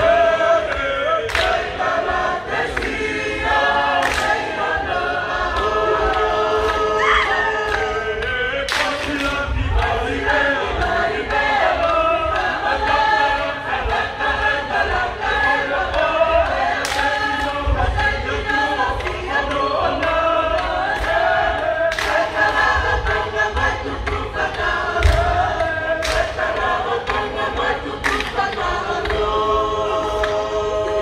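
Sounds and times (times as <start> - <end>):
large group singing a chant: 0.0 - 31.0.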